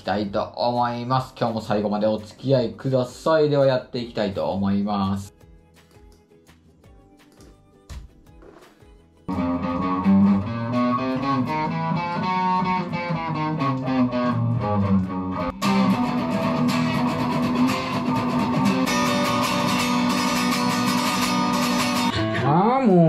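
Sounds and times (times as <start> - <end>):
guitar background music: 0.0 - 22.5.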